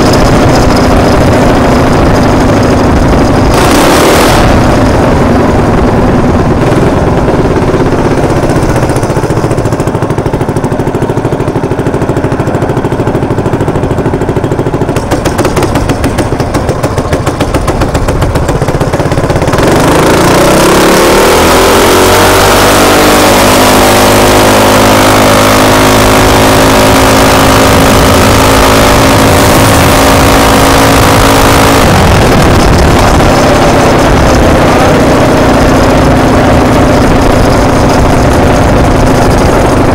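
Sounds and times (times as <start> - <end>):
minibike engine idling and revving: 0.0 - 39.9
wind on the microphone: 27.2 - 39.9.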